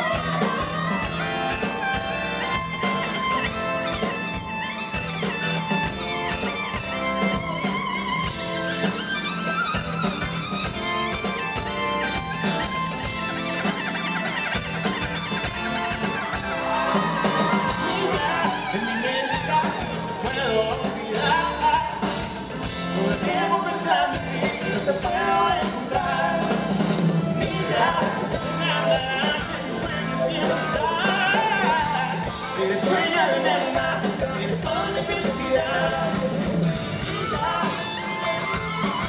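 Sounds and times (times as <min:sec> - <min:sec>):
live pop-rock band playing: 0:00.0 - 0:39.0
man singing: 0:16.8 - 0:26.8, 0:27.4 - 0:38.4.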